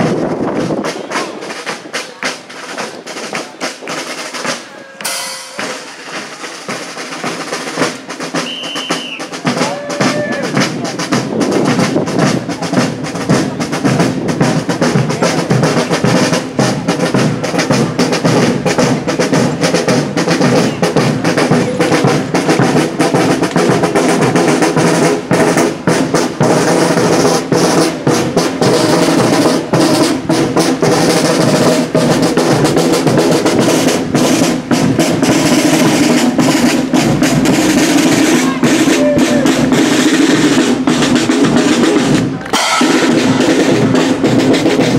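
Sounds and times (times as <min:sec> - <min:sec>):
snare drum rolls: 0:00.0 - 0:44.9
sustained instrument notes: 0:04.8 - 0:06.1
bass drum beats: 0:09.4 - 0:44.9.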